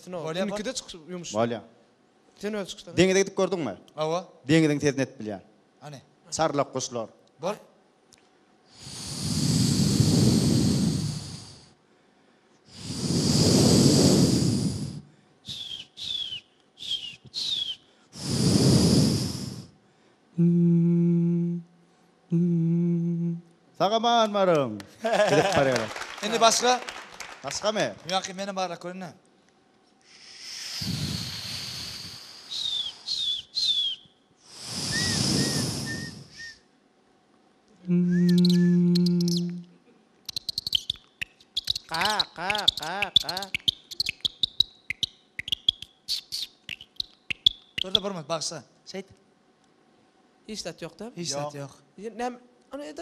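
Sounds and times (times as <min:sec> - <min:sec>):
man making breathy whooshing blows: 0:08.8 - 0:11.7, 0:12.7 - 0:16.2, 0:18.2 - 0:19.7, 0:30.1 - 0:33.3, 0:34.5 - 0:36.6
falling whistles: 0:15.5 - 0:18.4, 0:30.5 - 0:36.7, 0:38.1 - 0:39.5, 0:40.3 - 0:48.2.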